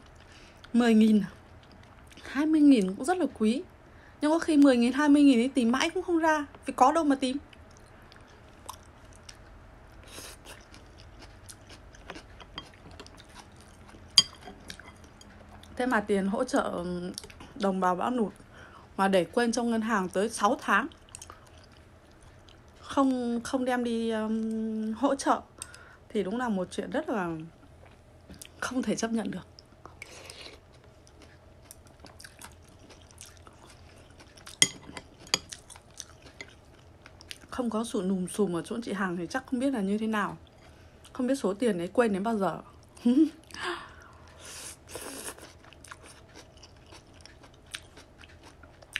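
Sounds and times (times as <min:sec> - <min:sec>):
person chewing: 0:07.5 - 0:15.8, 0:29.9 - 0:37.5, 0:43.4 - 0:48.9.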